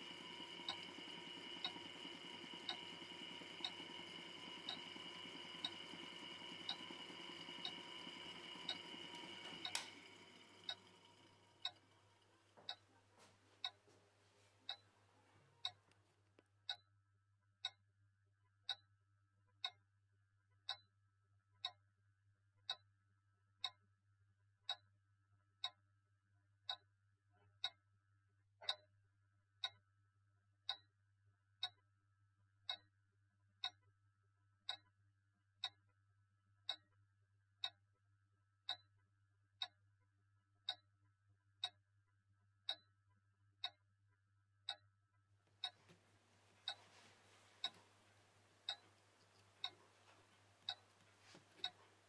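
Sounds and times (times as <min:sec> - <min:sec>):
clock ticking: 0:00.0 - 0:14.0, 0:14.7 - 0:14.9, 0:15.6 - 0:15.9, 0:45.6 - 0:52.0
faint low hum: 0:00.0 - 0:16.4, 0:45.5 - 0:52.0.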